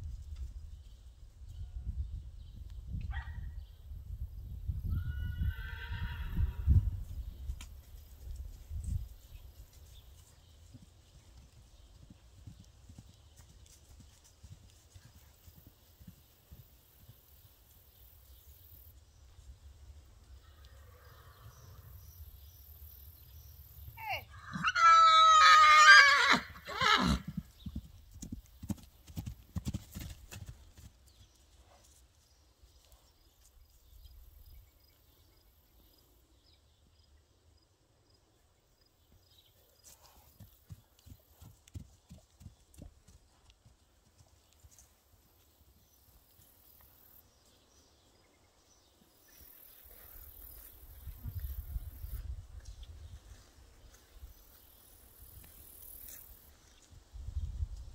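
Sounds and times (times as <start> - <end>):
horse whinnying: 5.0 - 6.7, 24.0 - 27.4.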